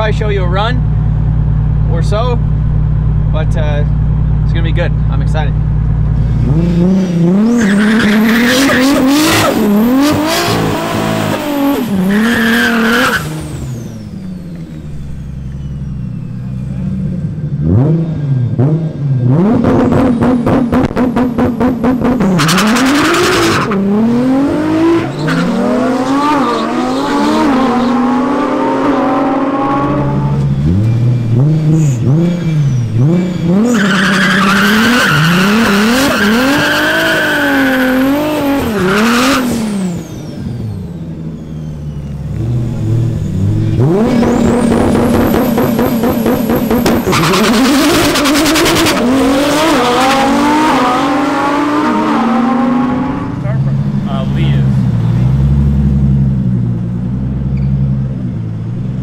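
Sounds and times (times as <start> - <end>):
car engine revving hard: 6.1 - 15.4, 16.6 - 58.2
tyre squeal: 7.0 - 9.9, 11.6 - 16.7, 25.0 - 28.0, 29.6 - 50.3
engine popping stutter: 41.4 - 50.7.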